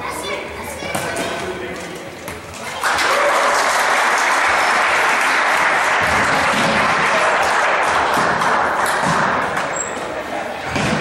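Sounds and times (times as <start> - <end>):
spectators applauding: 2.8 - 9.0.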